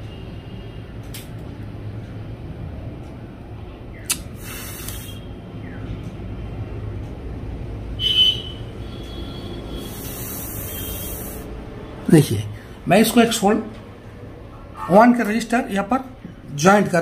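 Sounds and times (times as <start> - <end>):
electrical hum: 0.0 - 17.0
sharp click: 4.0 - 5.1
short hiss: 4.1 - 5.2, 9.8 - 11.5.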